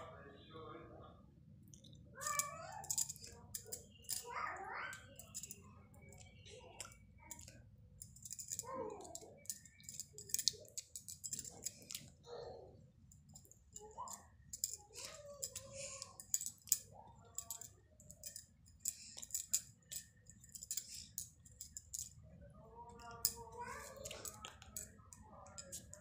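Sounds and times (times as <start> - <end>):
faint voice: 8.3 - 12.8, 13.8 - 19.6, 22.4 - 26.0.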